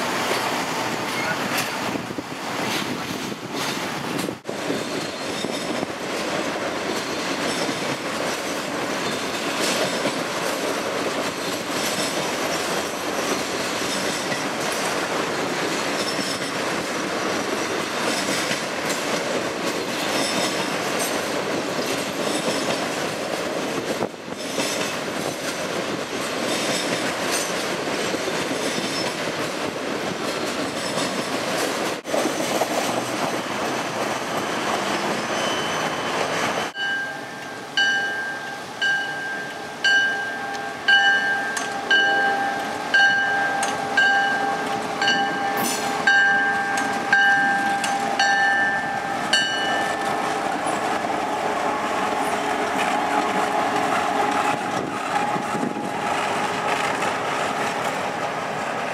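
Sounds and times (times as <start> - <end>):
diesel locomotive rolling by: 0.0 - 58.9
freight train rolling past: 0.0 - 58.9
crossing bell ringing: 35.3 - 56.0.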